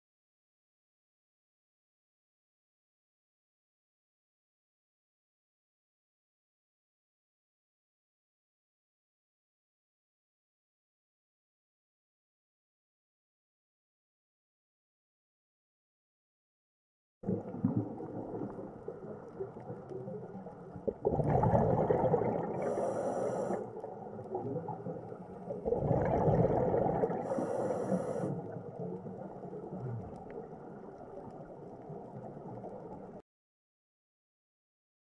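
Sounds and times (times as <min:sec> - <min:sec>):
low underwater background: 0:17.2 - 0:33.2
diver breathing through regulator: 0:22.4 - 0:23.9, 0:27.0 - 0:28.6.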